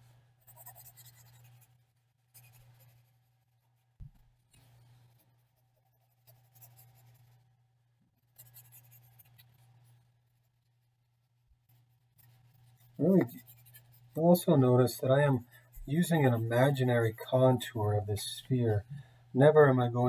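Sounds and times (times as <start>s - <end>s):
pencil scratching on paper: 0.4s - 1.8s, 2.4s - 3.3s, 4.7s - 7.4s, 8.2s - 9.7s, 11.7s - 16.8s.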